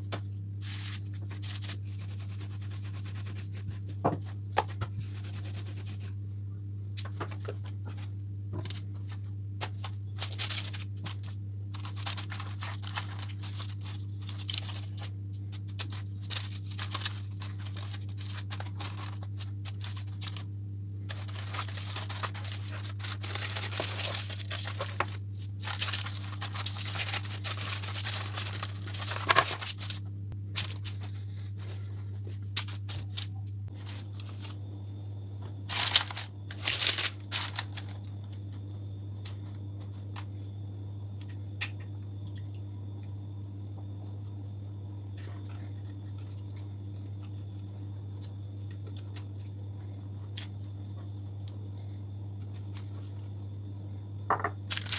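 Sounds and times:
paper rustling and crinkling: 0.0 - 6.2, 6.9 - 34.6, 35.6 - 38.6, 52.4 - 53.4, 54.7 - 54.9
steady low hum: 0.0 - 54.9.

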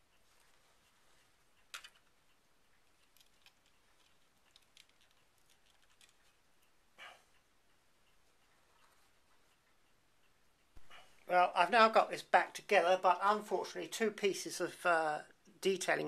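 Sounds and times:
faint plastic clicks and taps: 0.0 - 10.9.

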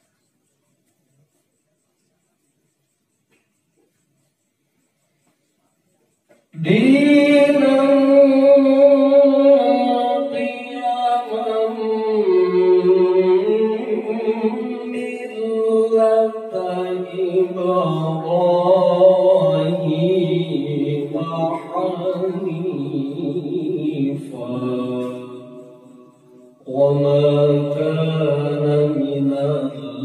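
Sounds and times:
person reciting melodically: 6.4 - 30.0.

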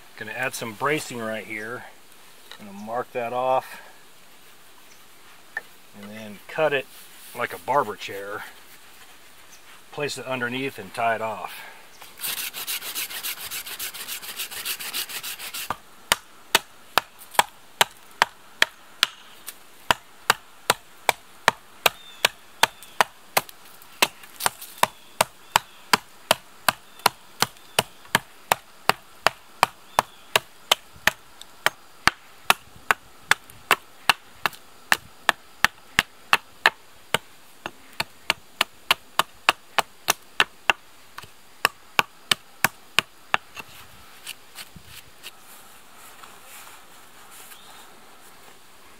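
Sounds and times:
hand saw rasping through log: 12.2 - 15.8
hatchet chopping into log: 15.7 - 19.2.

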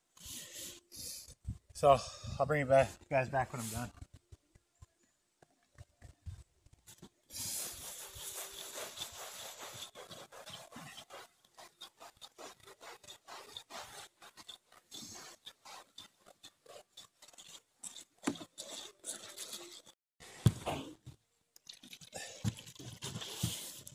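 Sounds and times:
brush scrubbing rubber roof: 2.8 - 4.2, 6.9 - 20.0, 22.8 - 23.9.

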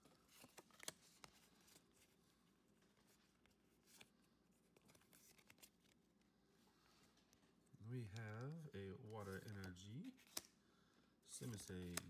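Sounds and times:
trading cards sliding and ticking: 7.1 - 10.5, 11.3 - 12.0.

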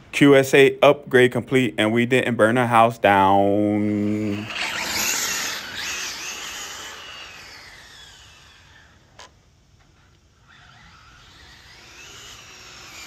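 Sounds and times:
rc car electric motor whine: 3.8 - 13.0.

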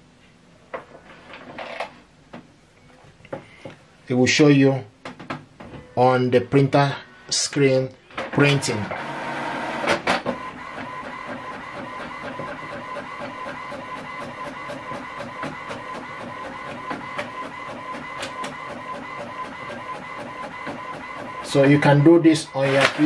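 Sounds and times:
inkjet printer whirring and clicking: 8.2 - 23.0
printer clacks: 8.2 - 23.0.

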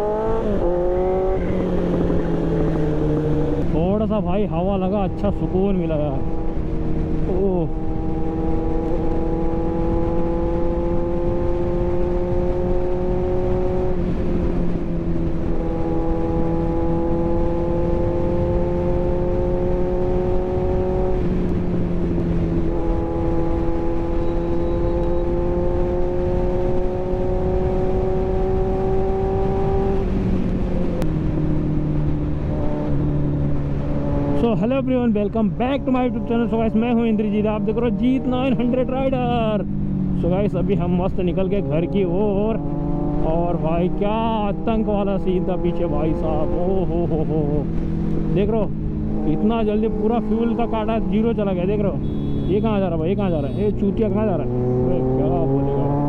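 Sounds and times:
motorcycle engine running: 0.0 - 4.2, 35.4 - 56.0
heavy wind rush: 0.0 - 24.7, 25.3 - 52.1.

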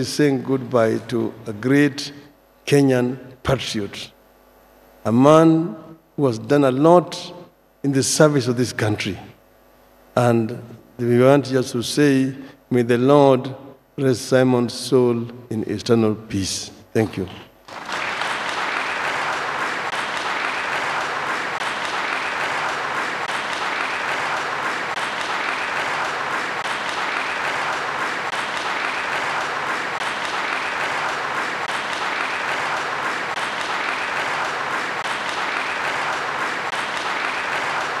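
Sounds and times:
crowd applause: 17.6 - 38.0.

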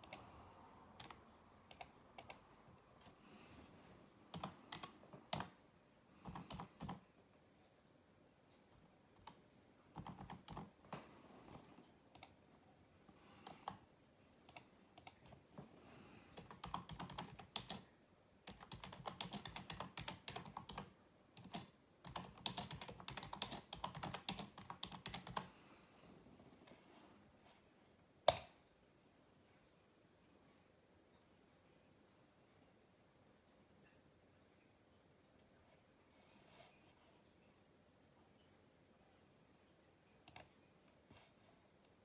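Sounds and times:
computer keyboard typing: 0.0 - 0.3, 0.9 - 2.4, 4.3 - 5.6, 6.2 - 7.0, 8.7 - 10.8, 11.5 - 12.4, 13.4 - 13.8, 14.5 - 15.4, 16.3 - 25.5, 40.2 - 40.6.

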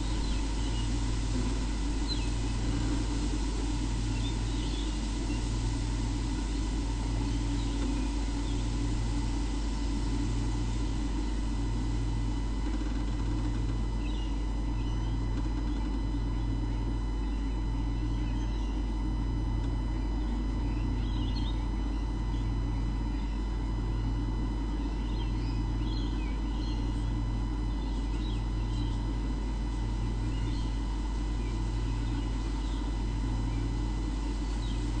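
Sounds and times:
electrical hum: 0.0 - 35.0
pulsing low buzz: 0.0 - 35.0
small birds chirping: 2.0 - 2.6, 4.1 - 5.5, 14.0 - 15.8, 25.0 - 27.1, 27.7 - 29.1, 31.4 - 33.7, 34.4 - 35.0.

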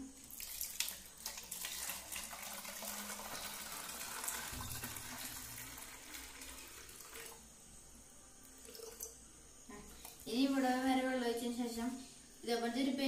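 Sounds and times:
water pouring into plastic bottle: 0.2 - 7.4.

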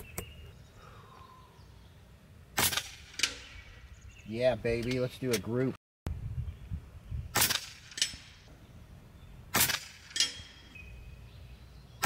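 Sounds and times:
air rifle shots: 2.6 - 3.6, 7.3 - 8.4, 9.5 - 10.6.

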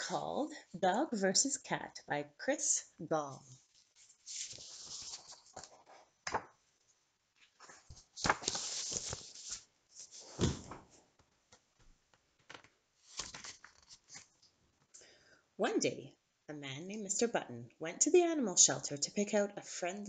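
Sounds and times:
book pages rustling: 3.4 - 6.6, 7.4 - 14.6.

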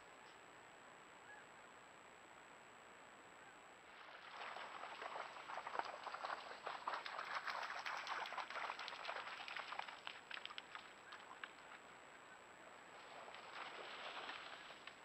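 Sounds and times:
deer splashing through water: 3.9 - 11.9, 12.9 - 15.0.

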